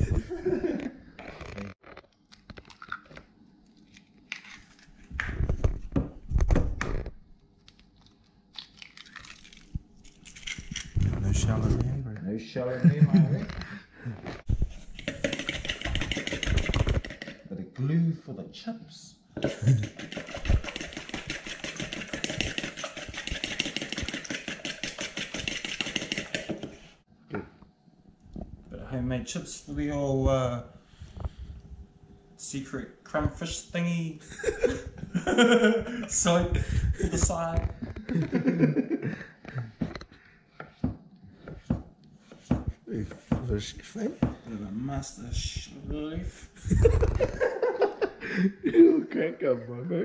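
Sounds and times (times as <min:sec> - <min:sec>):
potato chips crunching: 0:07.6 - 0:11.0.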